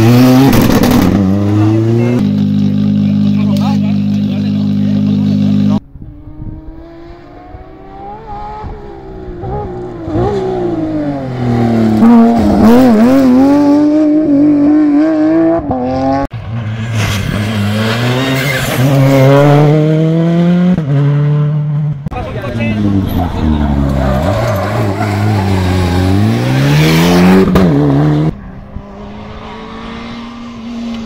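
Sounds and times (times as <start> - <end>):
rally car engine at full throttle: 0.0 - 31.0
second rally car approaching: 0.0 - 31.0.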